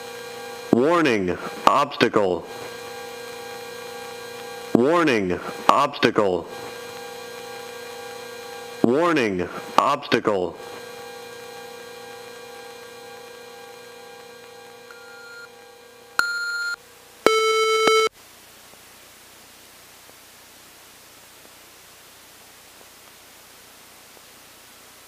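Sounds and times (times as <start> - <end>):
electronic cockpit hum: 11.5 - 18.2
faint steady hiss: 18.1 - 25.0.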